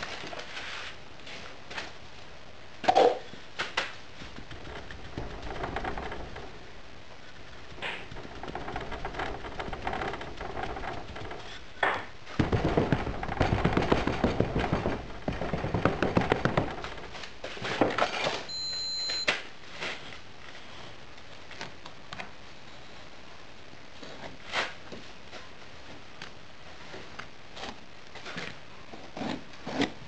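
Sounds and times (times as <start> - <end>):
short high beep: 18.5 - 19.3.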